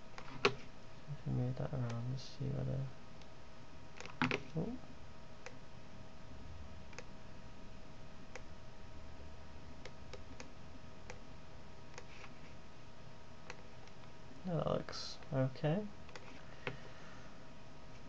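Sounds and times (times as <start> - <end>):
faint steady hum: 0.0 - 18.0
computer mouse clicks: 0.2 - 0.6, 4.0 - 4.4, 6.9 - 7.1, 9.8 - 11.2, 11.9 - 12.3, 13.4 - 14.1, 16.1 - 16.8.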